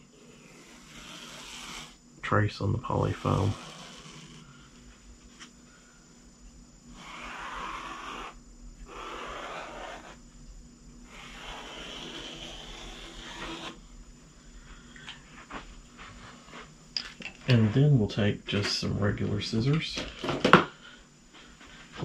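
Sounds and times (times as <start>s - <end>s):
marker rubbing on foam: 0.2s - 2.0s, 3.0s - 4.4s, 6.9s - 10.2s, 11.0s - 13.8s.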